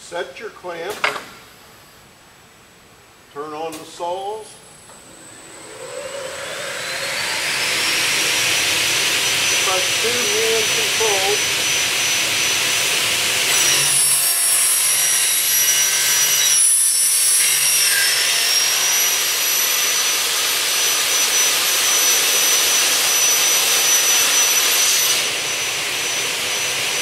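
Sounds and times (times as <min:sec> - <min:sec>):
saw blades whining while cutting: 0:05.1 - 0:27.0.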